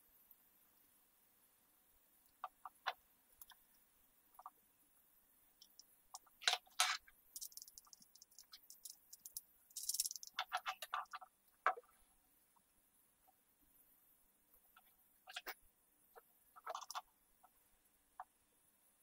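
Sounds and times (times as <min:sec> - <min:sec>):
small metal parts clicking and rattling: 0:05.6 - 0:11.2, 0:16.6 - 0:17.0.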